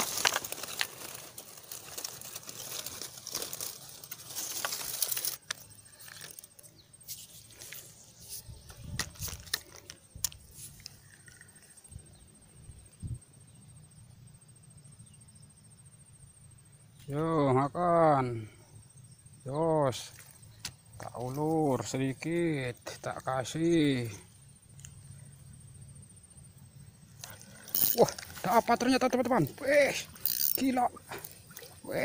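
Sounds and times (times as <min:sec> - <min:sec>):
leaves and twigs rustling: 0:00.0 - 0:11.8, 0:20.0 - 0:23.4, 0:27.1 - 0:32.0.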